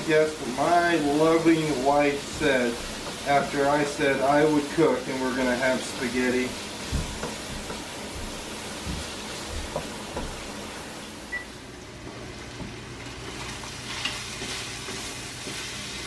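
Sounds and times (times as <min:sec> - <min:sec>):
meat sizzling in a frying pan: 0:00.0 - 0:11.3, 0:12.2 - 0:16.0
spatula knocking: 0:01.4 - 0:03.5, 0:06.8 - 0:10.5.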